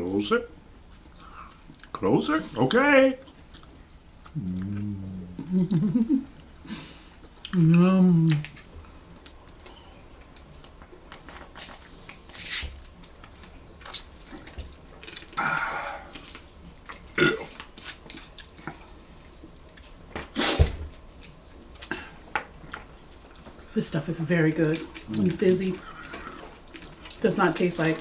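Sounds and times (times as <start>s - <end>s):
person swallowing: 4.3s - 5.6s.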